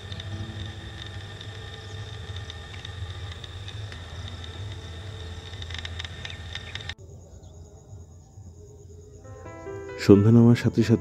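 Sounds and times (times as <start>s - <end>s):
faint clicking: 0.0s - 7.0s
low hum: 0.0s - 7.3s
high insect trill: 0.0s - 11.0s
insects chirring: 0.0s - 11.0s.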